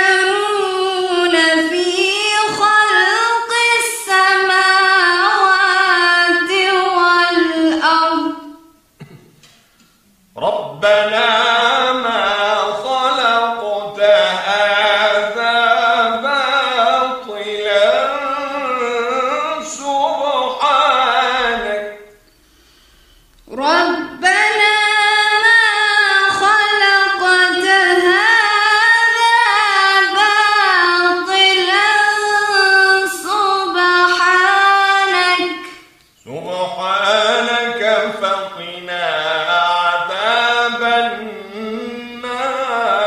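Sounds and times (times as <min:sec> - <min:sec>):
woman chanting recitation: 0:00.0 - 0:08.6, 0:10.4 - 0:22.0, 0:23.5 - 0:43.0
man chanting recitation: 0:10.3 - 0:22.2, 0:23.5 - 0:43.0.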